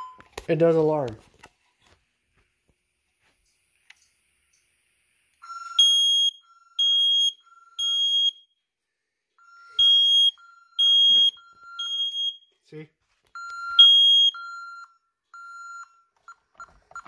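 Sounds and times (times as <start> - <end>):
high smoke alarm beeps: 5.4 - 8.6, 9.4 - 12.6, 13.4 - 16.1.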